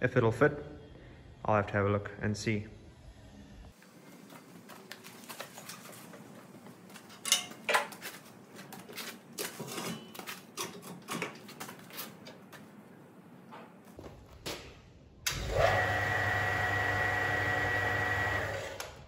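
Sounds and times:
metal clanks and clicks: 7.1 - 8.0.

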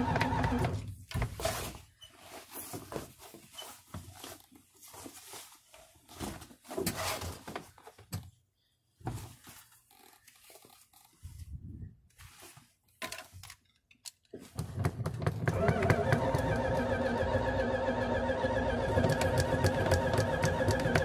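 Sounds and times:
clothing rustling: 1.3 - 8.1, 8.9 - 13.0.

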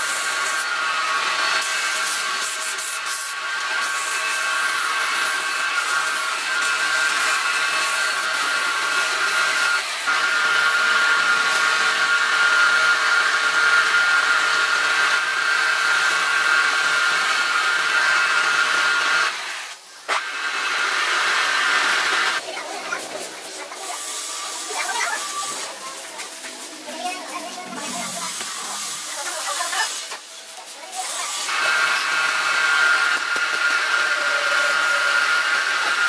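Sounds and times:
wood lathe motor whine: 0.0 - 19.6, 20.2 - 22.4, 31.5 - 36.0
sandpaper against spinning wood: 1.4 - 10.1, 21.9 - 36.0.

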